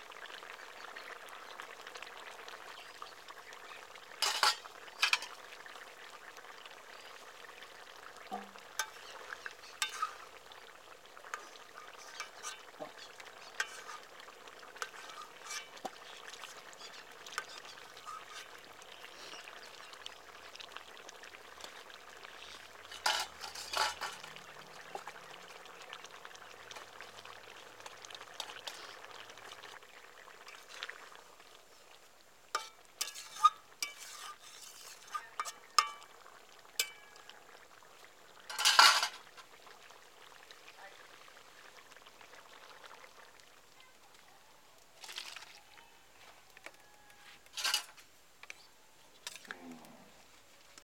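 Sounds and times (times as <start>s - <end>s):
curry simmering and sizzling: 0.0s - 50.8s
steel spoon clinking on pan: 4.2s - 5.3s, 32.6s - 34.2s, 35.2s - 36.1s
spatula stirring: 4.2s - 5.4s, 8.3s - 10.6s, 11.2s - 20.6s, 21.5s - 25.2s, 32.5s - 36.2s.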